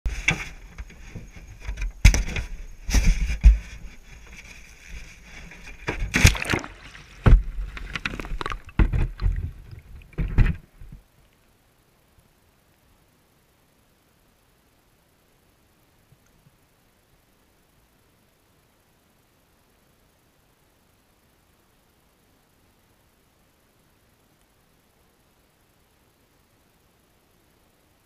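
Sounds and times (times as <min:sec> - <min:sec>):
water splashing: 0:05.6 - 0:11.0.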